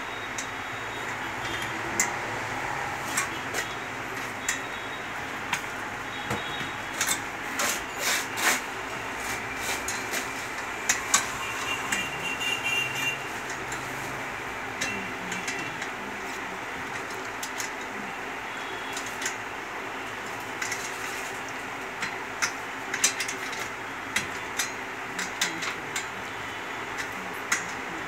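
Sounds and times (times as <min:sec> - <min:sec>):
light metal clicks and taps: 0:14.8 - 0:18.0, 0:20.2 - 0:26.2, 0:26.9 - 0:28.0.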